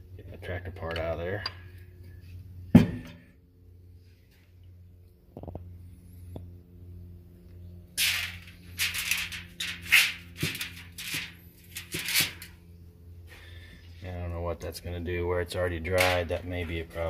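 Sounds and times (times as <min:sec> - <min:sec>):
steady low hum: 0:00.0 - 0:17.0
aluminium foil crinkling: 0:08.0 - 0:12.5.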